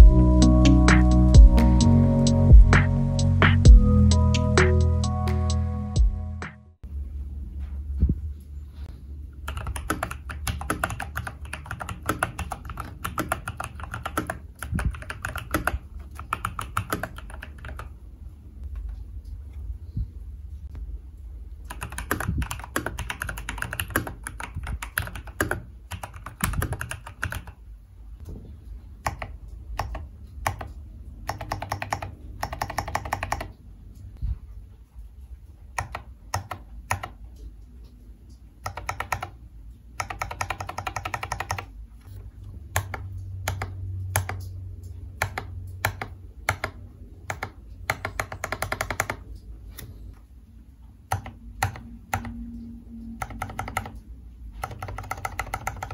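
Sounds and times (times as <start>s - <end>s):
mechanical keyboard typing: 9.4s - 18.0s, 21.6s - 27.6s, 29.0s - 33.6s, 35.7s - 37.3s, 38.6s - 41.7s, 42.7s - 49.9s, 51.0s - 52.4s, 53.1s - 55.9s.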